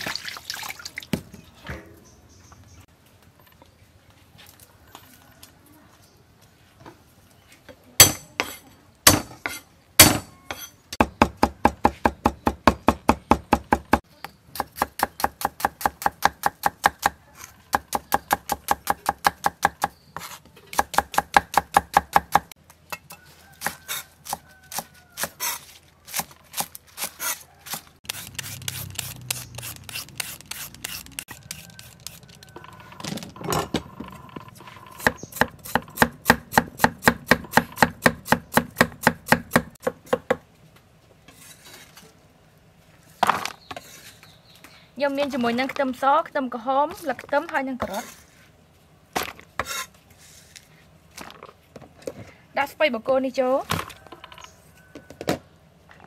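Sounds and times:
knife chopping on wooden block: 35.0s - 40.4s.

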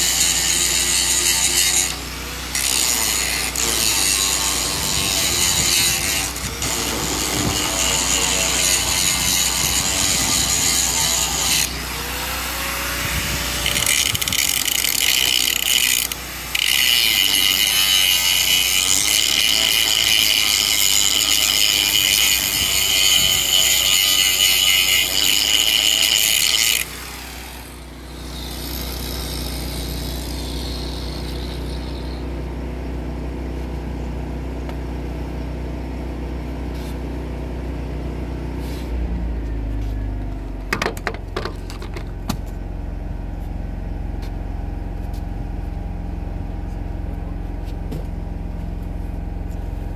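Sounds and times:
angle grinder grinding metal: 0.0s - 32.6s
low engine hum: 31.9s - 49.9s.

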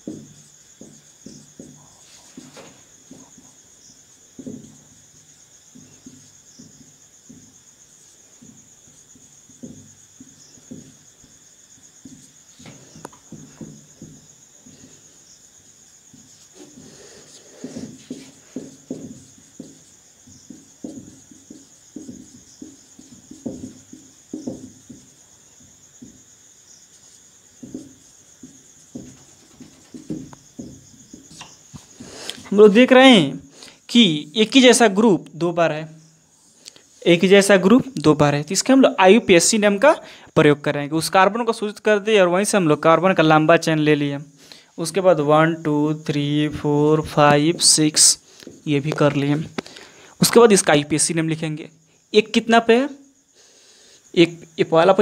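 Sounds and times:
marker pen writing on whiteboard: 0.0s - 33.5s, 46.5s - 49.7s
crickets chirring: 0.0s - 55.0s
insect trill: 0.0s - 55.0s.

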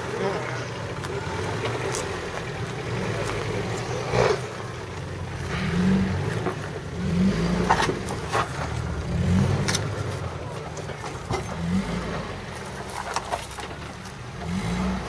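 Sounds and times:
engine running at low speed: 0.0s - 15.0s.

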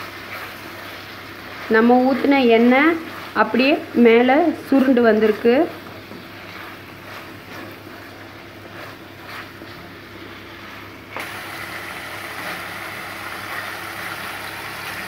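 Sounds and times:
wooden spatula scraping a pan: 0.0s - 11.0s
curry sizzling in oil: 0.0s - 15.0s.

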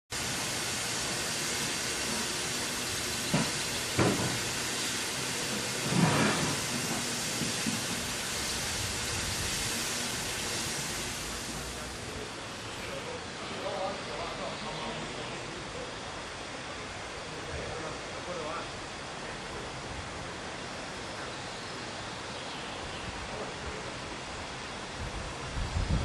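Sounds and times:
steam hissing: 0.1s - 17.2s.

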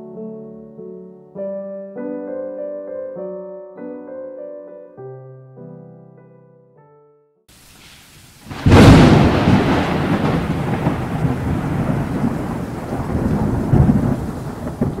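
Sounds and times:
thunder crack and rumble: 8.4s - 15.0s.

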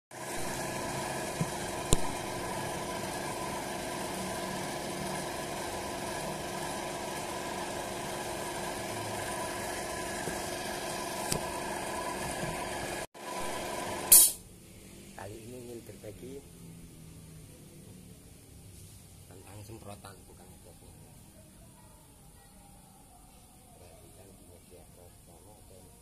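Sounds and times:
motor humming: 0.2s - 14.1s
sharp click: 1.9s - 2.2s, 14.1s - 14.4s.

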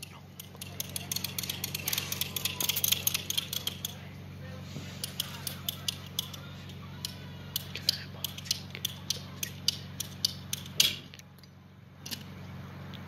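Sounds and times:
ratcheting pipe cutter clicking: 0.0s - 4.0s, 5.0s - 6.4s, 7.0s - 11.0s.

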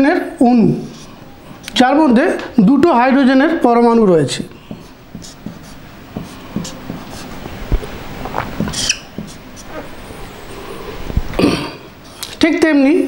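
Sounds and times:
marker squeaking on whiteboard: 4.6s - 10.4s.

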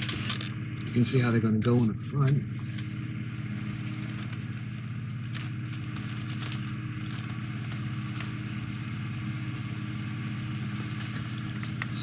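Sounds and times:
low hum: 0.0s - 12.0s
cardboard clicks and rustles: 3.9s - 8.8s.

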